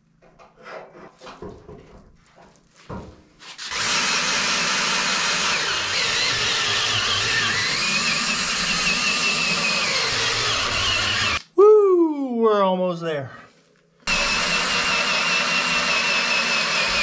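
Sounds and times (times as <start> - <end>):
cordless drill boring into log: 3.6 - 11.4, 14.1 - 17.0.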